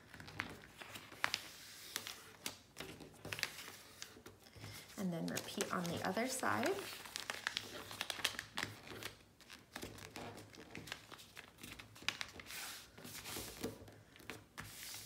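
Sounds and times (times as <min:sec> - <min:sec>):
paper rustling and crinkling: 0:00.0 - 0:15.0
fingers clicking along paper fold: 0:06.9 - 0:12.5.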